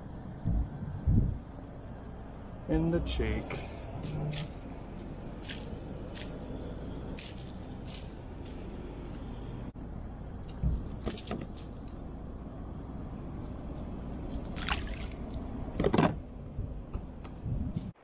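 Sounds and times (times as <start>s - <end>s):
fish splashing into water: 14.5s - 15.2s.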